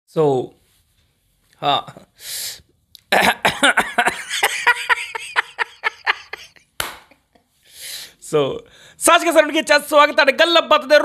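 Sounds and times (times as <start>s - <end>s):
man laughing hard: 3.1s - 6.7s.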